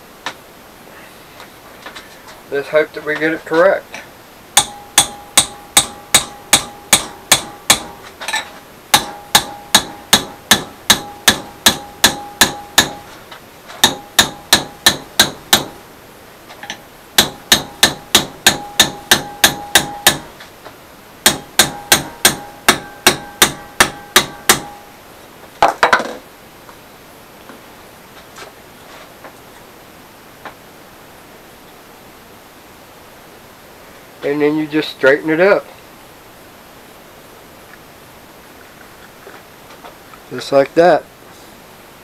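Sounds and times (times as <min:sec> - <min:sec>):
hammer ringing on steel rod: 0:04.6 - 0:08.0, 0:08.9 - 0:13.1, 0:13.8 - 0:15.8, 0:17.2 - 0:20.3, 0:21.2 - 0:24.9.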